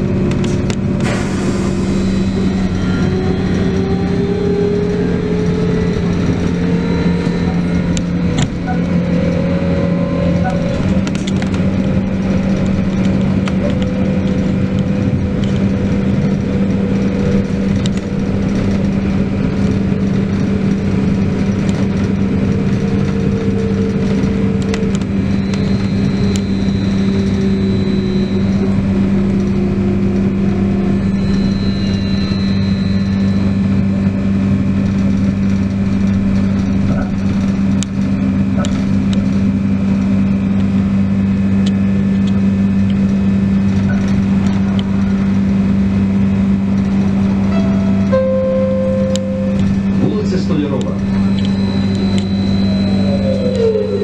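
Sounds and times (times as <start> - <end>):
trolleybus electric hum: 0.0 - 54.0
motor whine: 13.4 - 35.8, 38.1 - 54.0
short high whine: 25.0 - 34.8, 47.1 - 54.0.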